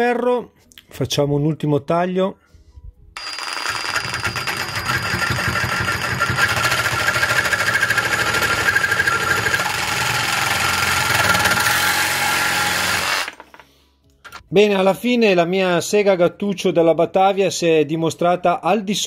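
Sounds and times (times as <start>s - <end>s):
reciprocating saw cutting metal pipe: 3.2s - 13.6s.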